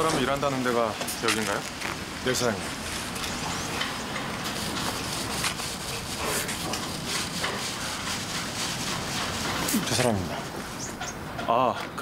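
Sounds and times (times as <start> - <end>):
steady noise bed: 0.0 - 11.5
distant voices: 0.0 - 12.0.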